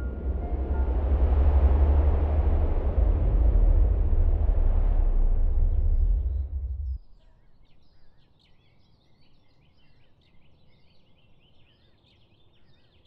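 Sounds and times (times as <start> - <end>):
deep rumble: 0.0 - 7.0.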